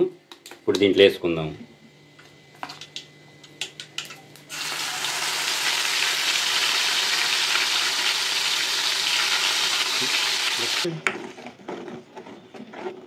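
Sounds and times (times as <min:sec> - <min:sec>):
paste sizzling in hot oil: 0:04.5 - 0:10.9.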